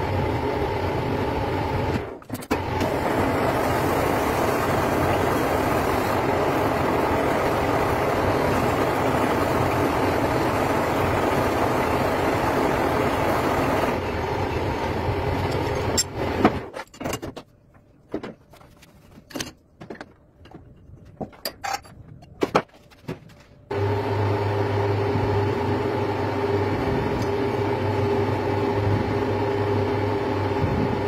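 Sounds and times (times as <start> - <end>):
lathe grinding metal: 2.8 - 16.2
metal clanks and knocks: 15.5 - 23.4.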